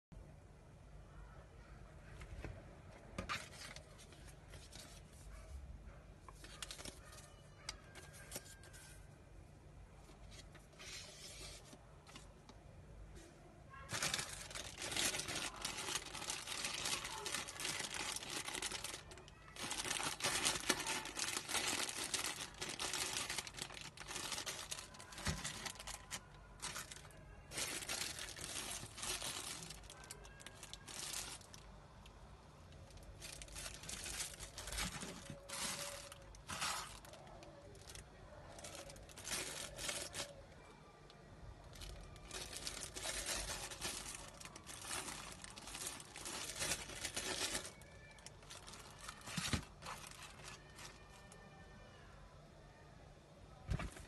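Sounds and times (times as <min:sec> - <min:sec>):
plastic bags crinkling: 0:06.4 - 0:07.2, 0:13.8 - 0:31.7, 0:32.9 - 0:40.4, 0:41.6 - 0:51.2.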